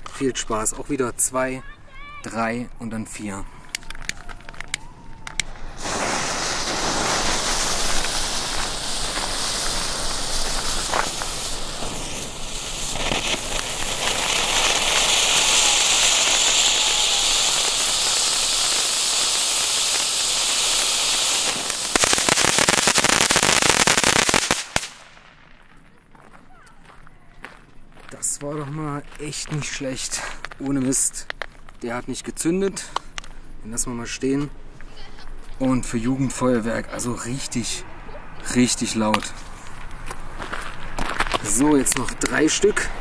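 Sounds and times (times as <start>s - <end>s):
firework fountains hissing: 3.7s - 25.4s, 35.2s - 43.0s
rapid crackle of sharp pops: 3.7s - 25.8s, 29.1s - 31.8s, 39.1s - 43.0s.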